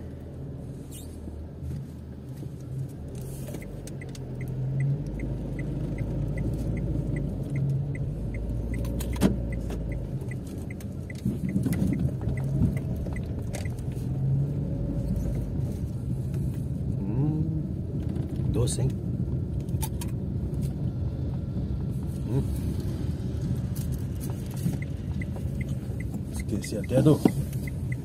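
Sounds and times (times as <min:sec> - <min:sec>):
car engine and road rumble: 0:00.0 - 0:28.0
dashboard ticking: 0:03.6 - 0:13.8, 0:24.8 - 0:28.0.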